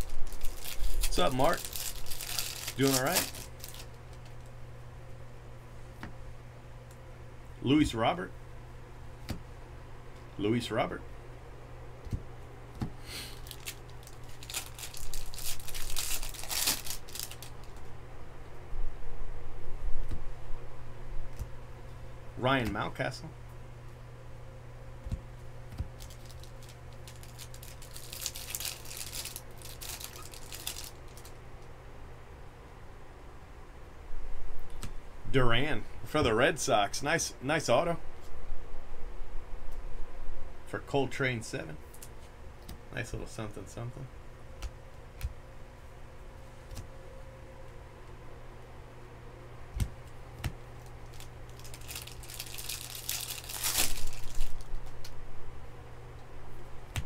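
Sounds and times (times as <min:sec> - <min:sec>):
wrapper crinkling and tearing: 0:00.0 - 0:04.5, 0:13.2 - 0:17.9, 0:26.0 - 0:31.4, 0:50.8 - 0:55.2
faint low hum: 0:00.0 - 0:57.0.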